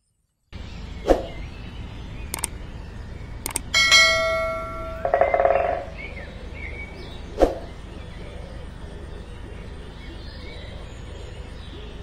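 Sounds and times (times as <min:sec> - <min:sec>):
mouse clicks: 0:02.3 - 0:02.5, 0:03.4 - 0:03.7
bright bell ding: 0:03.8 - 0:05.8
rapid jingling ring: 0:03.8 - 0:05.9.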